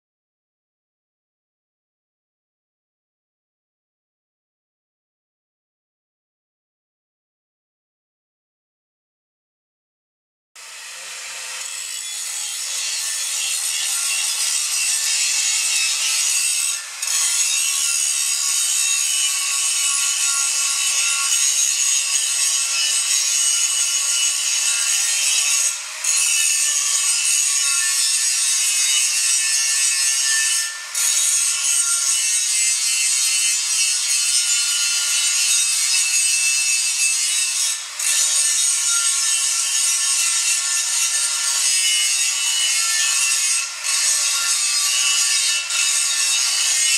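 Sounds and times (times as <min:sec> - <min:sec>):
angle grinder grinding steel: 0:10.6 - 0:46.9.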